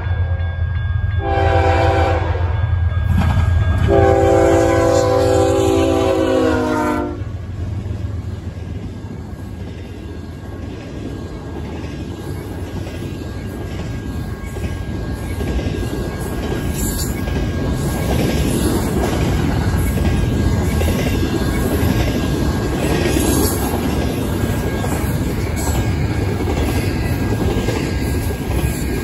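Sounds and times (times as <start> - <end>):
train wheels rumbling on rail: 1.0 - 29.0
locomotive air horn: 1.2 - 2.6, 3.9 - 7.3.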